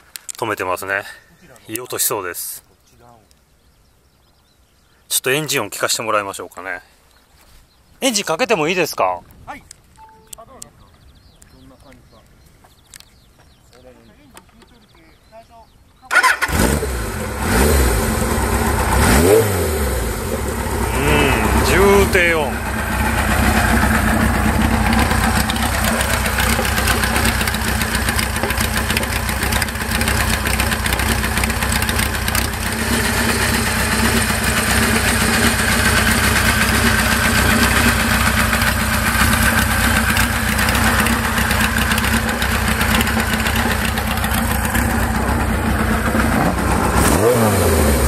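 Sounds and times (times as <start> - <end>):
motorcycle engine idling: 17.0 - 47.4.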